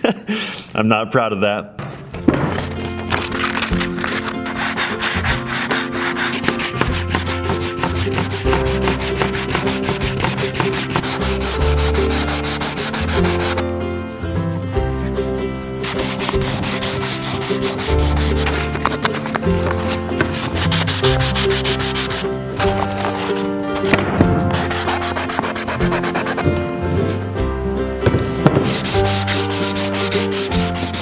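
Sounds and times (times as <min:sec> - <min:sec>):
sanding block scrubbing on steel: 0:03.5 - 0:22.3, 0:24.4 - 0:26.6, 0:28.6 - 0:31.0.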